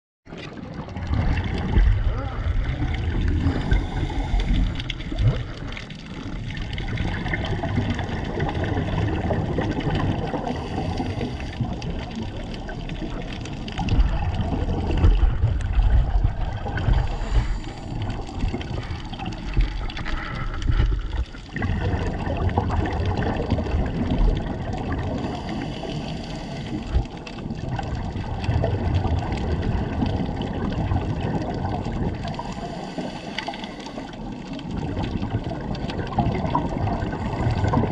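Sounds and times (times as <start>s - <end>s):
exhaust bubbles gurgling: 0.3s - 37.9s
scuba diver breathing underwater: 1.6s - 6.2s, 7.4s - 13.0s, 13.6s - 27.4s, 31.3s - 35.7s, 36.5s - 37.9s.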